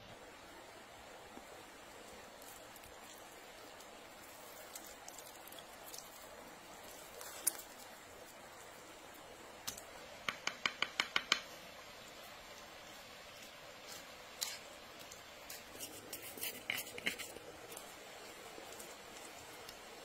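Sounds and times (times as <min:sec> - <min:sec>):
knife scraping food onto bread: 0:15.5 - 0:17.4.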